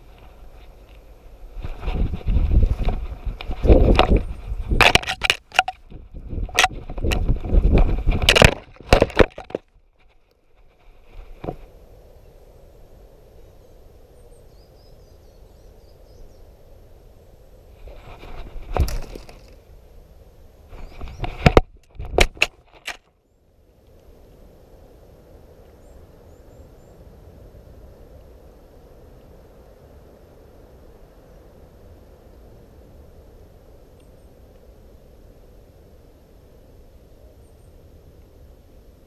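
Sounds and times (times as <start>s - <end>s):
rustling through undergrowth: 0.0s - 12.0s, 17.6s - 23.1s.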